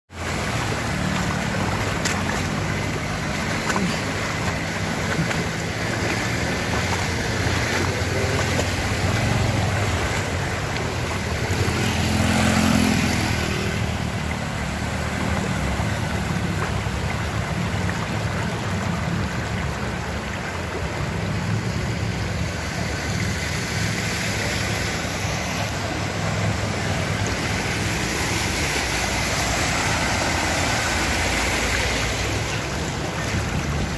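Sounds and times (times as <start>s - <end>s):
floodwater rushing over road: 0.1s - 33.9s
motorbike engines humming: 0.2s - 33.9s.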